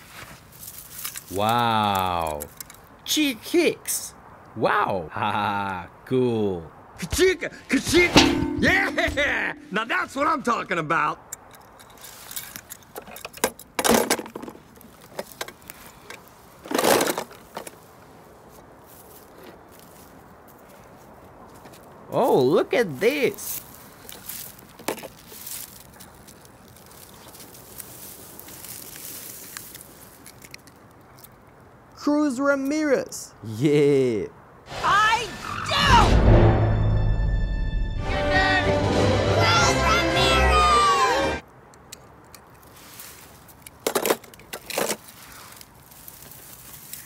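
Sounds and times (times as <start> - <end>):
grass and dry leaves rustling: 0.0 - 3.1, 11.4 - 32.0, 41.5 - 47.0
faint outdoor hiss: 0.0 - 35.8, 41.4 - 47.0
crackles and snaps: 0.2 - 3.0, 23.4 - 32.0, 41.7 - 47.0.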